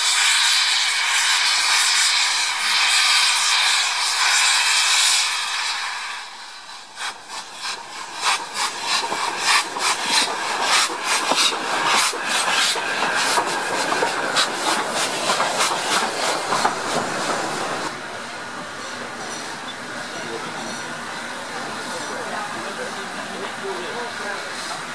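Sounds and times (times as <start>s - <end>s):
steam hissing from drain cocks: 0.0s - 18.0s
steam locomotive exhaust chuffs: 0.0s - 24.9s.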